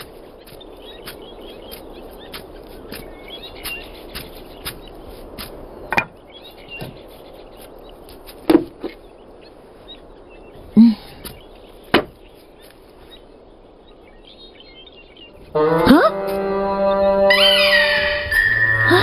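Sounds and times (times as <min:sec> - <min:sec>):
wooden knocks: 0:05.4 - 0:06.2, 0:08.4 - 0:09.0, 0:11.2 - 0:12.2.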